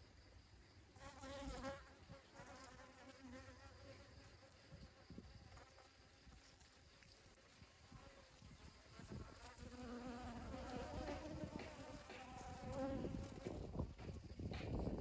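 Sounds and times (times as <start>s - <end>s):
bees buzzing: 8.0s - 13.7s.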